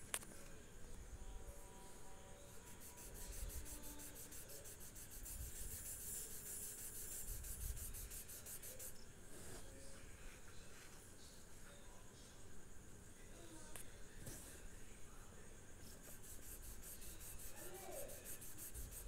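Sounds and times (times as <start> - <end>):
pastel scraping across paper: 2.6 - 9.7, 15.8 - 19.0.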